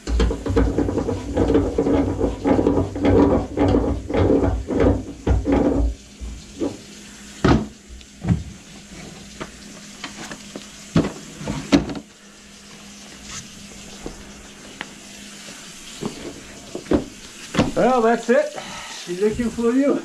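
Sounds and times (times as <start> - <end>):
handling knocks and clunks: 0.0 - 6.0
tap water running into sink: 0.0 - 20.0.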